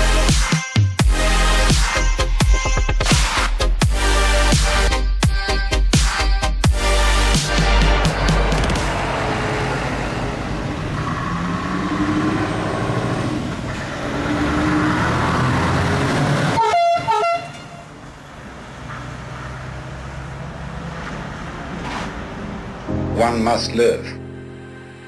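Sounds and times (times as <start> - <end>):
truck engine rumble: 6.8 - 23.0
air horn toots: 16.6 - 17.9.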